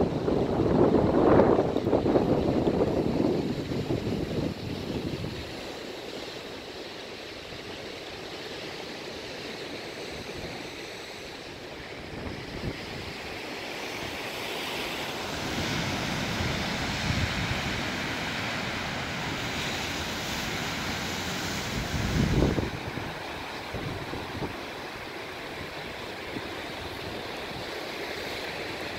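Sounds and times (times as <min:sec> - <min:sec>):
wind on the microphone: 0:00.0 - 0:05.6, 0:12.0 - 0:13.4, 0:15.4 - 0:27.7
sea surf breaking on rocks: 0:11.4 - 0:28.9.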